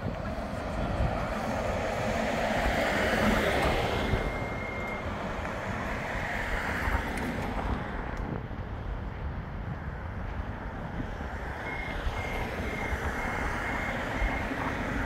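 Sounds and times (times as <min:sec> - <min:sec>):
road traffic: 0:00.0 - 0:15.0
tram equipment running: 0:00.0 - 0:15.0
wind on microphone: 0:00.0 - 0:15.0
thin high whine: 0:02.5 - 0:05.8.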